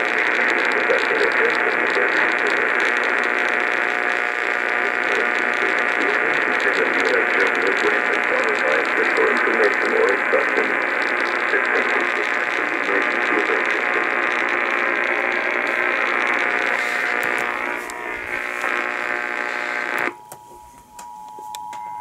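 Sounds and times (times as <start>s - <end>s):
radio static hiss: 0.0s - 20.9s
steady hum: 0.0s - 22.0s
clicks: 15.7s - 18.9s.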